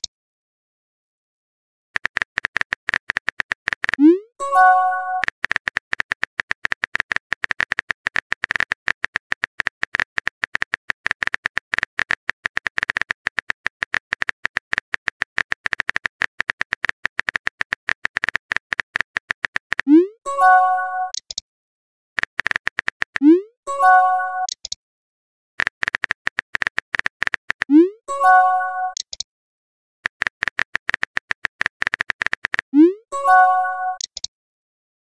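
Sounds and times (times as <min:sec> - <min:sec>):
typing key clicks sound effect: 0:02.0 - 0:09.0, 0:19.4 - 0:21.4, 0:22.3 - 0:24.8, 0:25.6 - 0:29.3, 0:30.2 - 0:34.3
chiming message tone: 0:04.4 - 0:05.2, 0:20.3 - 0:21.1, 0:23.7 - 0:24.5, 0:28.1 - 0:29.0, 0:32.8 - 0:34.0.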